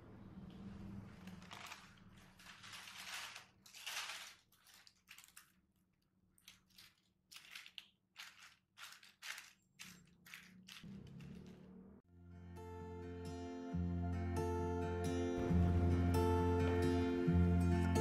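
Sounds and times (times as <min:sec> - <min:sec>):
parchment paper rustling: 0:01.0 - 0:11.6.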